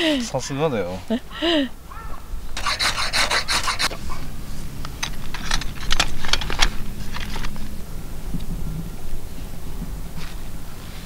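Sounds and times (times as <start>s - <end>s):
ferro rod scraping: 2.6s - 4.0s.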